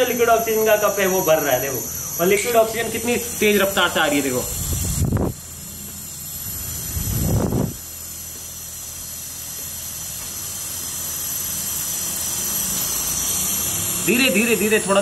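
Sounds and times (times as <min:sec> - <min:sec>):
liquid hissing into cup: 0:05.9 - 0:14.5.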